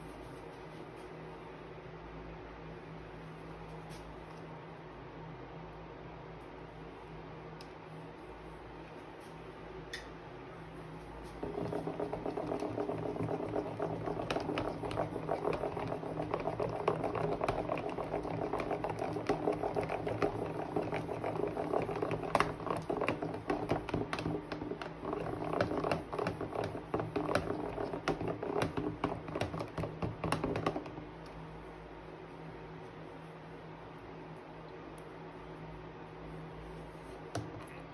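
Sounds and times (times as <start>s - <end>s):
slime squelching while stirred: 10.8s - 31.7s.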